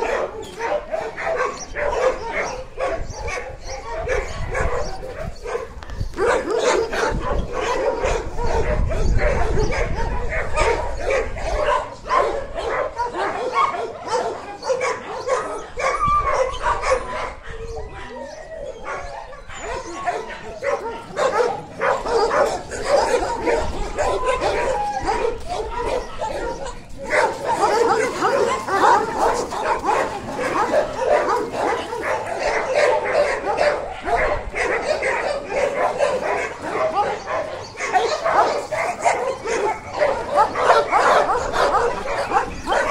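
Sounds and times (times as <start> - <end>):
dogs barking and yipping: 0.0 - 42.9.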